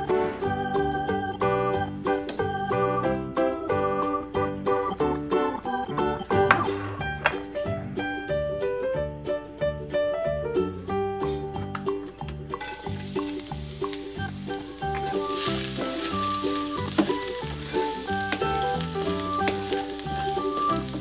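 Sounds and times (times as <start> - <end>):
piano music: 0.0 - 21.0
garlic sizzling in oil: 12.5 - 21.0
wooden spatula stirring: 12.6 - 21.0.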